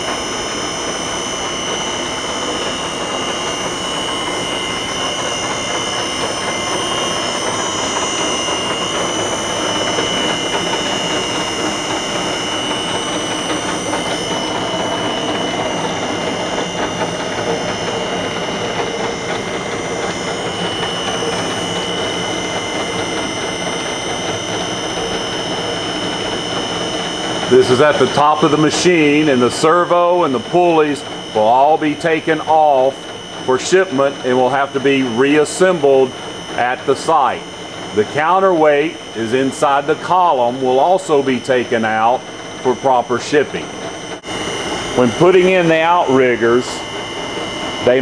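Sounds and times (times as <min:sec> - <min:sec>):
high-pitched whines: 0:00.0 - 0:48.0
machinery humming: 0:00.0 - 0:48.0.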